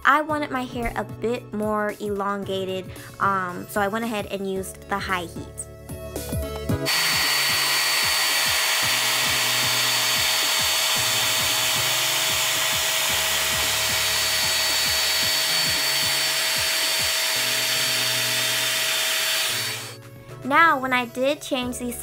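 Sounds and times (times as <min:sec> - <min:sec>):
hair dryer blowing: 0:06.8 - 0:20.0.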